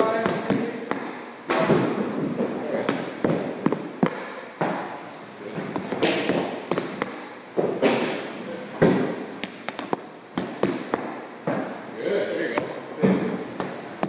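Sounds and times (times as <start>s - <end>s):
hockey stick hitting puck: 0.0s - 5.0s, 5.6s - 11.7s
pucks striking pads and boards: 0.0s - 11.8s, 12.5s - 14.0s
puck scraping along floor: 0.1s - 11.8s.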